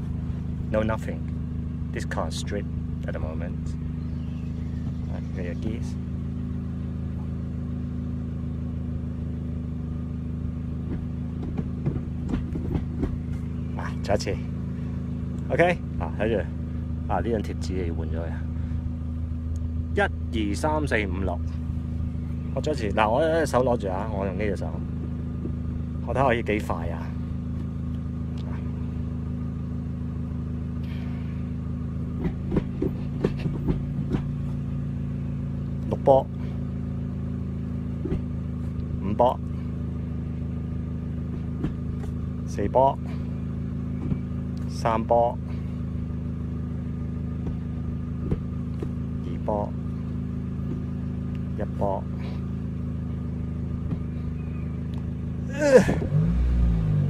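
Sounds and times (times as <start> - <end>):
car engine idling: 0.0 - 57.0.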